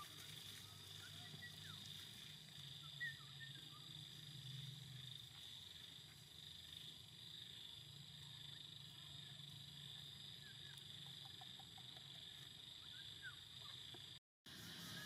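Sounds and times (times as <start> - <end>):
insect chirps: 0.0 - 15.0
insects droning: 0.0 - 15.0.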